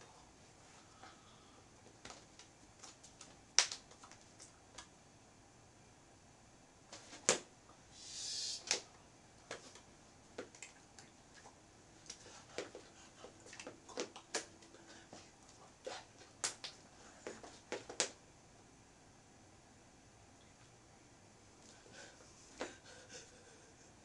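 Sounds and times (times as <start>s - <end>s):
hands slapping and tapping: 2.0s - 4.9s, 13.5s - 14.8s, 16.2s - 18.2s
breathy hiss: 7.9s - 9.1s.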